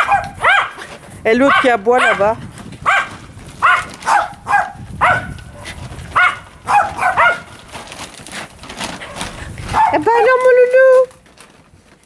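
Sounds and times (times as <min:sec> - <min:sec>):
small dog yapping: 0:00.0 - 0:00.8, 0:01.5 - 0:07.5, 0:09.0 - 0:10.1.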